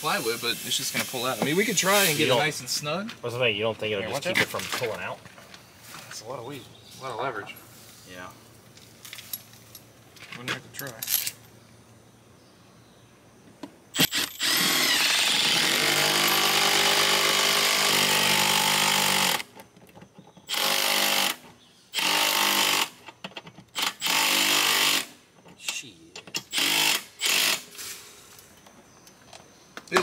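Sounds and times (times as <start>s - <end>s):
drill click: 14.0s - 16.7s
cordless drill driving screw: 14.0s - 19.5s, 20.5s - 21.4s, 22.0s - 22.9s, 23.8s - 25.1s, 26.4s - 27.6s.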